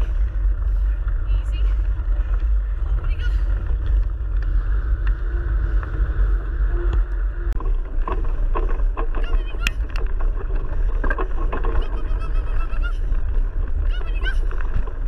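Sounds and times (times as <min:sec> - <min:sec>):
bike tyres crunching and rattling: 0:00.0 - 0:15.0
wind buffeting microphone: 0:00.0 - 0:15.0
short high squeaks: 0:11.6 - 0:13.0.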